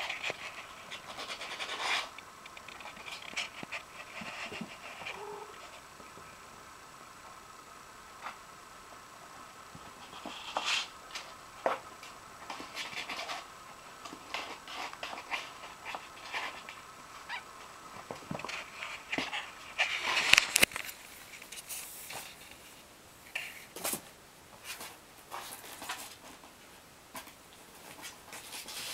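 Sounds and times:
claws scratching cardboard: 0:00.0 - 0:05.8.

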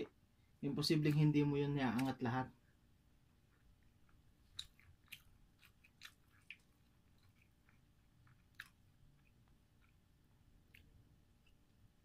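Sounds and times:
low room hush: 0:00.0 - 0:12.0
chewing mouth smacks: 0:03.4 - 0:11.8.

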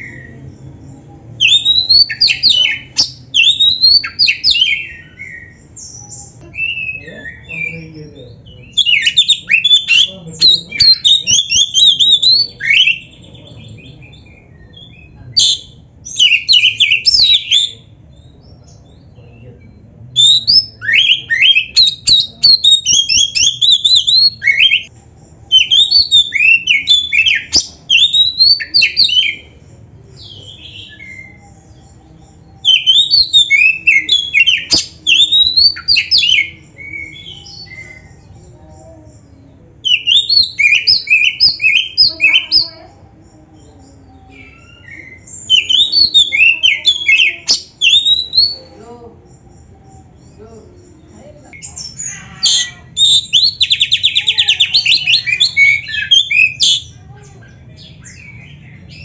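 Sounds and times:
bird singing whistled chattering notes: 0:00.0 - 0:38.6, 0:39.8 - 0:59.0.

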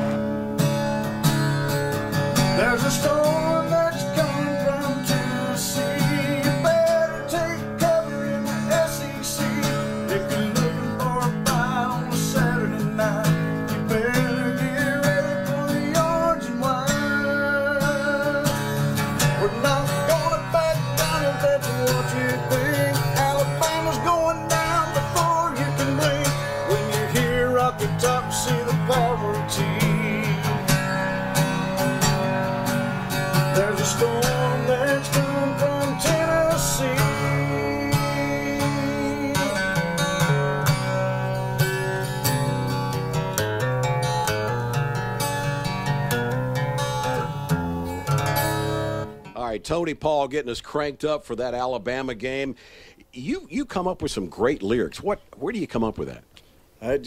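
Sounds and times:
guitar strummed: 0:00.0 - 0:49.6
man singing: 0:02.4 - 0:31.3, 0:33.1 - 0:40.9.

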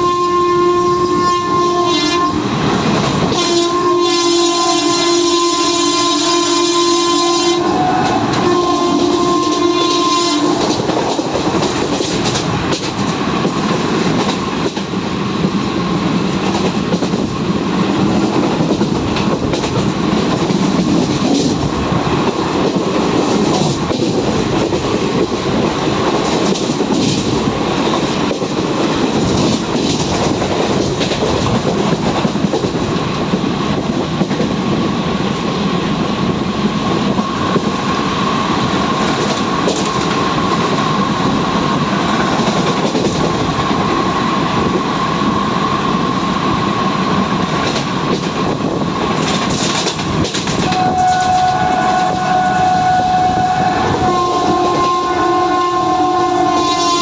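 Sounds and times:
locomotive horn: 0:00.0 - 0:10.9, 0:50.6 - 0:57.0
train wheels rumbling on rails: 0:00.0 - 0:57.0
rail joints clacking: 0:01.9 - 0:05.5, 0:07.4 - 0:57.0.

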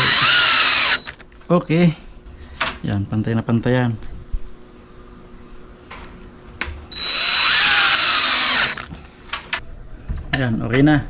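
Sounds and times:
power drill driving screw: 0:00.0 - 0:01.2, 0:06.9 - 0:09.0.

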